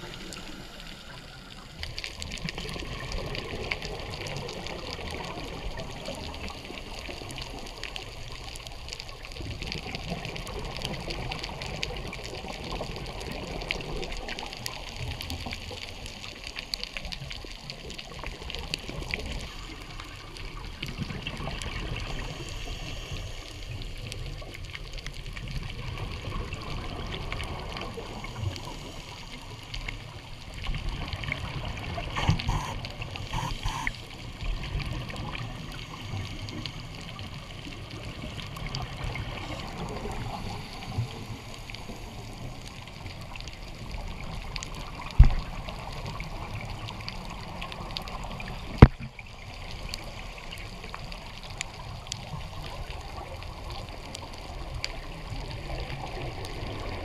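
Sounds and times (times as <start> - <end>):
fine crackle of clicks: 0.0 - 57.0
underwater water wash: 0.0 - 57.0
low underwater rumble: 17.4 - 50.1.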